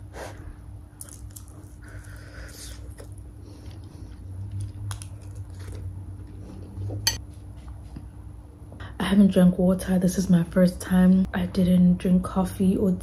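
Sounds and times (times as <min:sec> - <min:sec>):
steady low hum: 0:00.0 - 0:13.0
person chewing food: 0:01.0 - 0:07.2.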